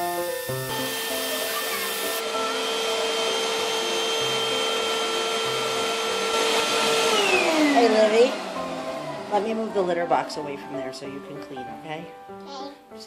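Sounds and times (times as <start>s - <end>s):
plucky background music: 0.0s - 2.4s, 7.9s - 13.0s
vacuum cleaner whining: 0.0s - 11.1s.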